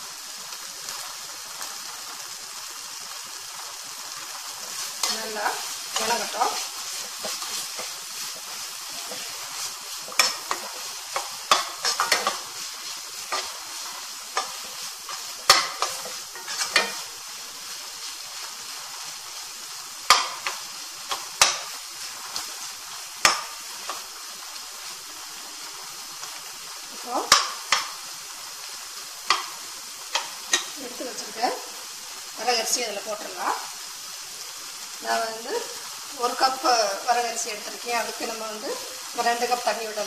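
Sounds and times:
vegetables sizzling in a pan: 0:00.0 - 0:40.0
spatula clicking against pan: 0:14.4 - 0:17.0, 0:20.1 - 0:21.7, 0:23.2 - 0:24.0, 0:27.3 - 0:28.0, 0:29.2 - 0:30.7.

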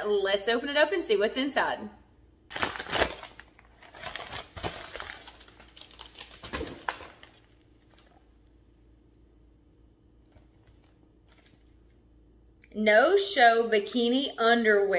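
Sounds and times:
paper mailer tearing: 0:02.5 - 0:07.2
plastic packaging crinkling: 0:02.5 - 0:08.4, 0:10.2 - 0:12.0.

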